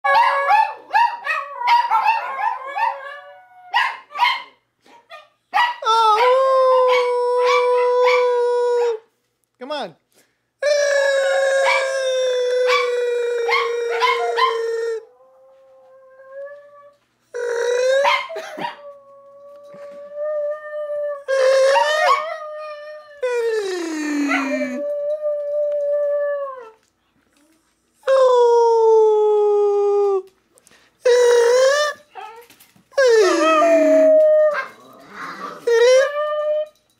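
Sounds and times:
small dogs howling and yipping: 0.1 - 4.3, 5.6 - 9.0, 10.9 - 17.0, 17.9 - 23.2, 24.0 - 26.8, 31.8 - 36.9
long steady dog howl: 5.8 - 9.1, 10.6 - 26.8, 33.0 - 36.8.

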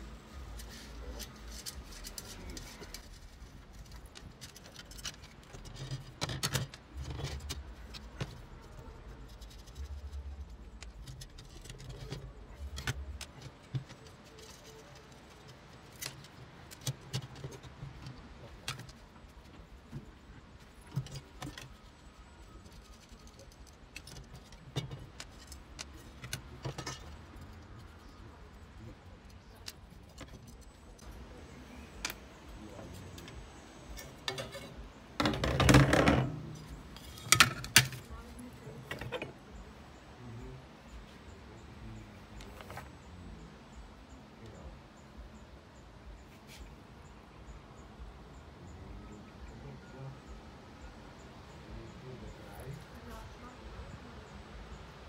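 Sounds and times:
metal frame clinking and rattling: 33.9 - 38.1.

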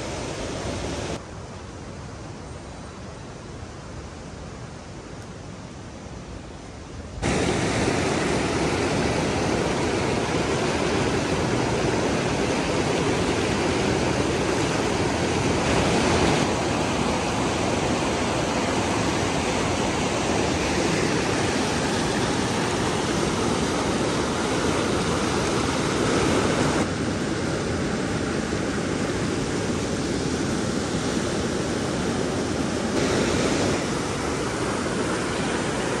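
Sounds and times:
river rushing over boulders: 7.1 - 36.0.

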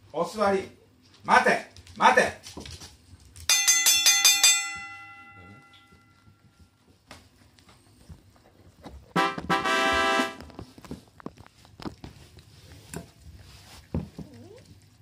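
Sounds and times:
bright bell chimes: 3.5 - 6.4.

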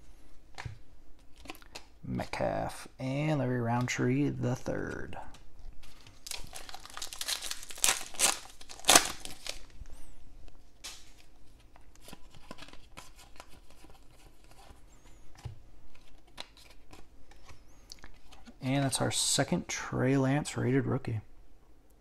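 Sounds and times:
cards clicking and rustling: 4.7 - 9.7, 10.8 - 18.6
wrapper tearing and crinkling: 5.9 - 9.8.

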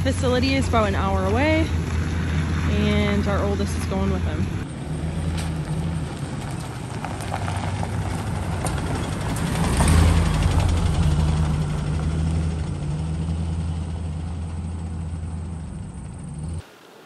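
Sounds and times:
pickup truck engine driving on gravel: 0.0 - 16.6.

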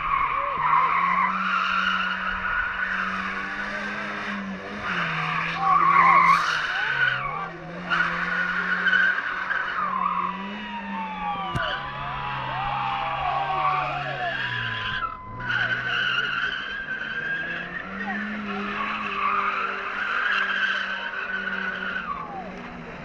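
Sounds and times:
car engine at high revs: 0.0 - 23.0
tyres squealing on concrete: 11.5 - 22.4.

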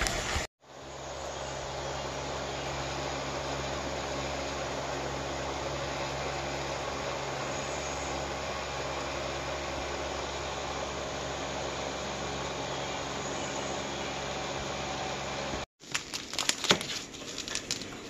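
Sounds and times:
machine hum: 0.0 - 15.7.

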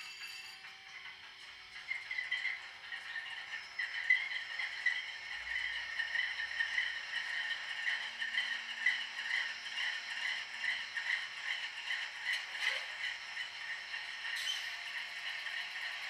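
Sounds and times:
model locomotive diesel engine sound: 0.0 - 16.0.

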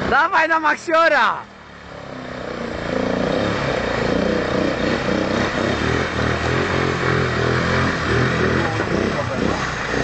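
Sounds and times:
quad bike engine revving: 1.7 - 10.0.

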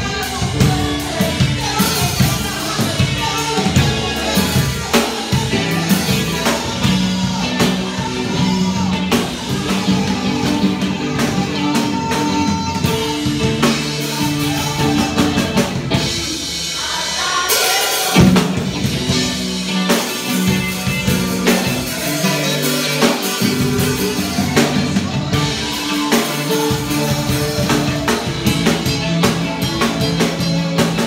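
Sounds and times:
acoustic drum kit: 0.0 - 31.0
amplified electric guitar: 0.0 - 31.0
person singing: 0.0 - 31.0.

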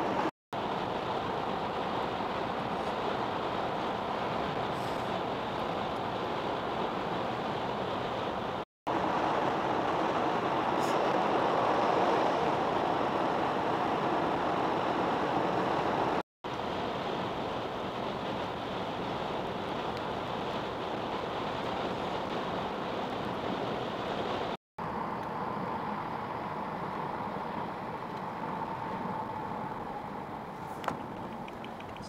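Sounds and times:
road and tyre noise in car: 0.0 - 32.0.

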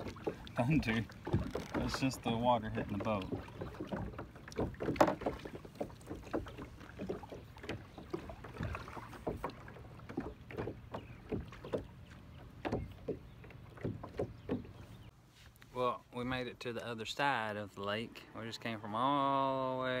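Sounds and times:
water slapping against kayak hull: 0.0 - 15.1.

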